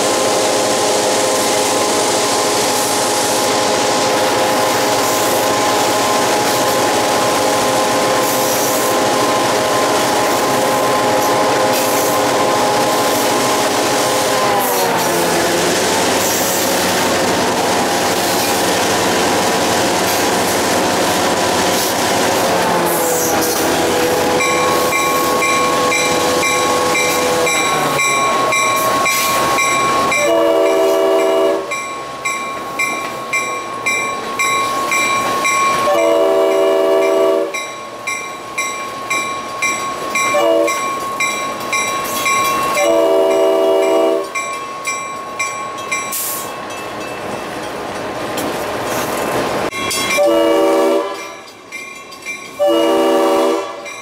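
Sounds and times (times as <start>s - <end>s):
train rumbling on rails: 0.0s - 54.0s
diesel locomotive horn: 14.1s - 15.8s, 22.7s - 28.6s, 30.1s - 31.8s, 35.8s - 37.6s, 40.3s - 40.8s, 42.8s - 44.4s, 50.1s - 51.4s, 52.6s - 53.9s
bell ringing: 24.4s - 30.3s, 31.7s - 36.1s, 37.6s - 47.8s.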